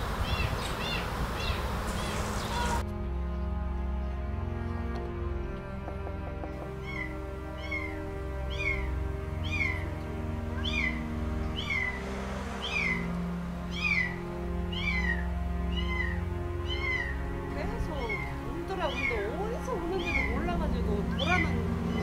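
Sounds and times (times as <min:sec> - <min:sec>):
background music with held notes: 0:00.0 - 0:22.0
kitten mewing: 0:06.8 - 0:09.8, 0:14.7 - 0:17.2.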